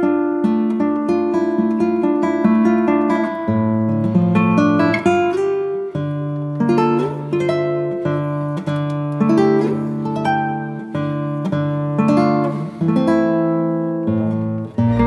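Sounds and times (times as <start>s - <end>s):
acoustic guitar picking: 0.0s - 15.0s
bass line: 14.8s - 15.0s.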